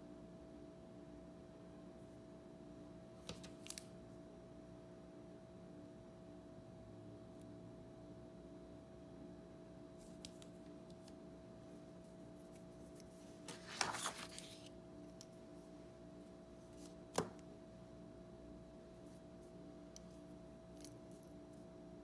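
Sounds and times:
steady low hum: 3.8 - 22.0.

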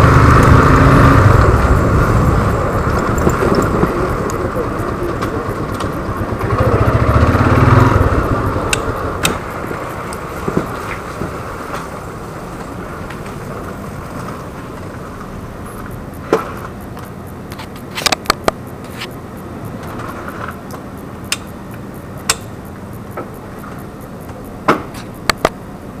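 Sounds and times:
motorcycle engine idling: 0.0 - 13.6
sharp clicks and knocks: 1.4 - 7.4, 8.4 - 12.0, 14.2 - 25.6.

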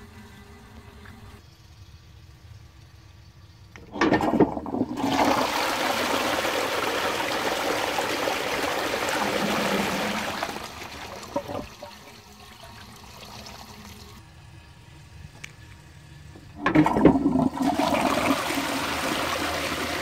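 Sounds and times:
toilet flush clunk: 3.8 - 12.3, 16.4 - 20.0
water gushing through toilet bowl: 3.9 - 14.2, 16.6 - 20.0.

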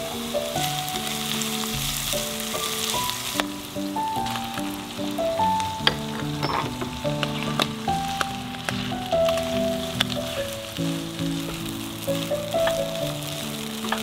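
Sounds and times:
food sizzling in frying pan: 0.0 - 14.0
soft piano-like background music: 0.0 - 14.0
stirring clicks: 5.5 - 14.0.

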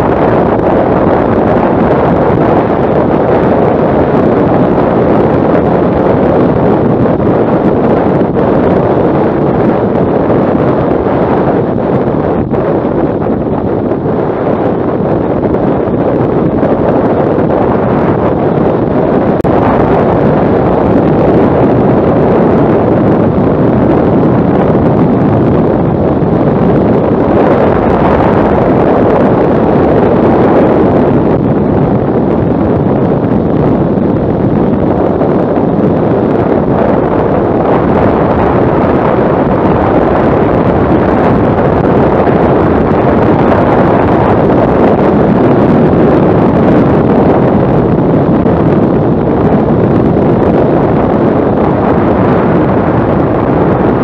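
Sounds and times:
motorcycle road noise: 0.0 - 54.0
wind buffeting microphone: 0.0 - 54.0.

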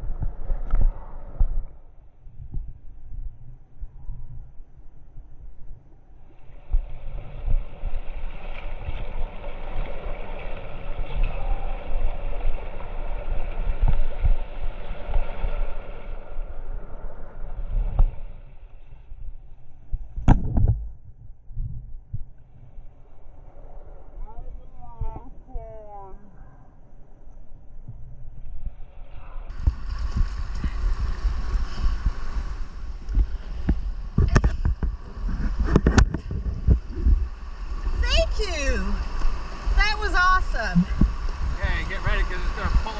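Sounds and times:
microphone rumble: 19.2 - 23.0, 27.8 - 42.9
low thuds: 19.9 - 22.5
whitewater rushing and splashing: 29.5 - 42.9
whitewater rushing: 37.3 - 42.9.

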